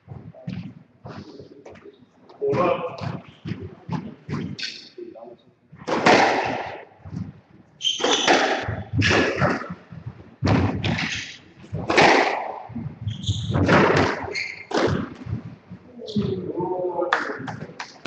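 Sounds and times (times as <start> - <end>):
squash ball hits: 5.8 - 6.9, 7.8 - 15.5.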